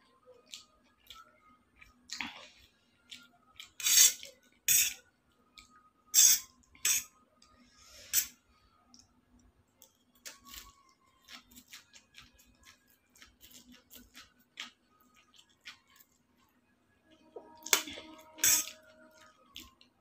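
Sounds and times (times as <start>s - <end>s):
metal fork scraping a steel plate: 17.6s - 18.8s.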